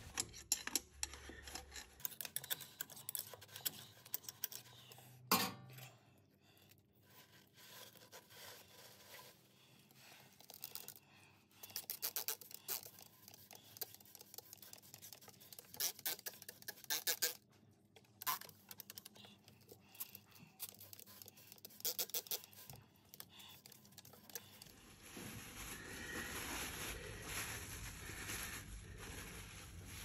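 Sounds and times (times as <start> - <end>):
paper towels crinkling and scratching: 7.0 - 11.0, 23.6 - 30.0.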